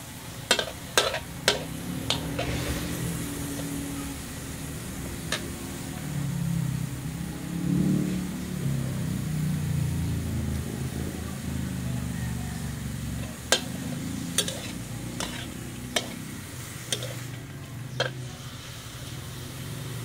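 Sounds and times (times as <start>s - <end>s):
frying sizzle: 0.0s - 20.0s
spatula stirring meat in wok: 0.1s - 5.8s, 12.8s - 20.0s
spatula clinking on wok: 0.4s - 2.6s, 13.2s - 18.5s
low engine hum: 0.4s - 20.0s.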